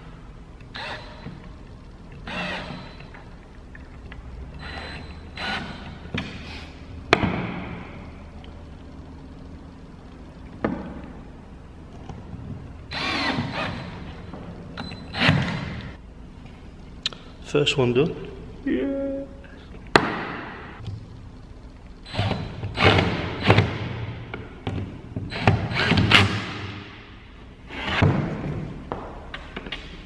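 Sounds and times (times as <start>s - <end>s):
cordless drill driving screws: 4.6s - 6.0s, 12.9s - 14.0s.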